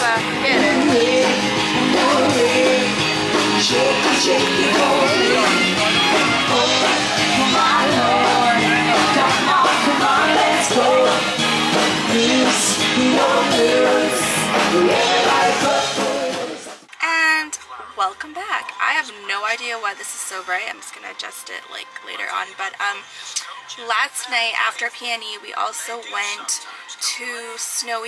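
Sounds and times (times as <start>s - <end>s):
live rock band playing: 0.0s - 16.7s
person singing: 0.0s - 16.8s.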